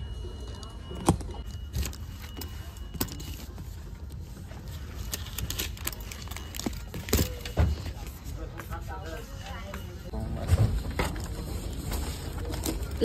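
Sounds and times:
paper tag rustling: 1.4 - 8.3.

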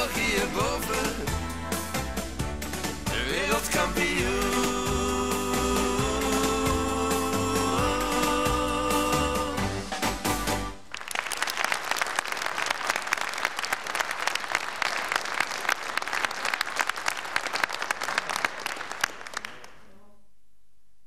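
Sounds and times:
audience applauding: 10.8 - 19.9.

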